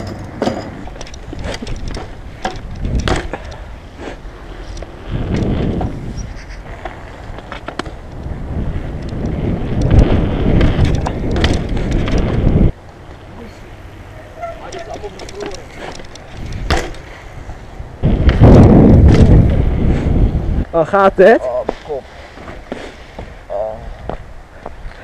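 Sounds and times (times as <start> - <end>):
bike clicks and knocks: 0.0 - 6.0, 6.6 - 13.3, 14.4 - 19.6
bike tyres rolling on concrete: 0.0 - 25.0.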